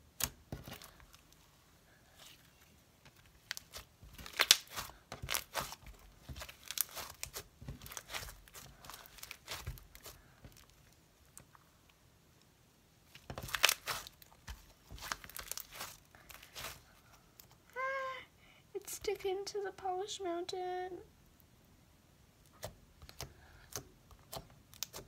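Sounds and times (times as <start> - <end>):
slime crackling and popping: 3.2 - 11.5, 13.1 - 16.9, 22.4 - 25.0.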